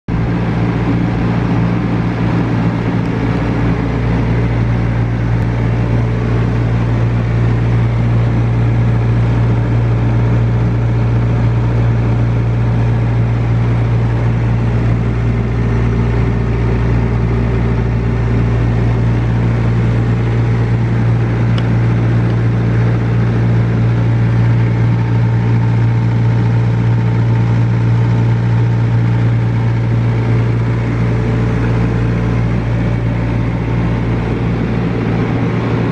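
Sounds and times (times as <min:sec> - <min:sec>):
refrigeration unit humming: 0:00.1 - 0:35.9.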